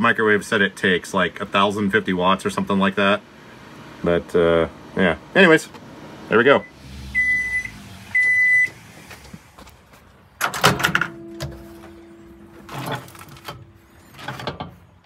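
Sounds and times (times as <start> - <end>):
microwave beep: 6.6 - 8.8
microwave door opening clunk: 10.4 - 13.7.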